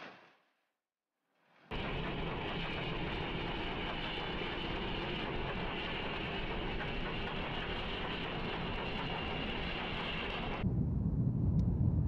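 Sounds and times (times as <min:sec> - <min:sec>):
snowplow train through snow: 0:01.7 - 0:10.6.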